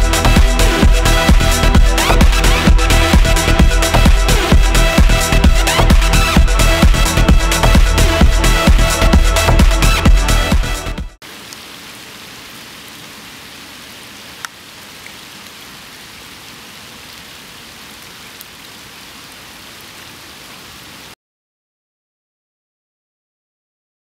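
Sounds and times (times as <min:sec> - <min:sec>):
rain falling on pond: 0:11.2 - 0:21.2.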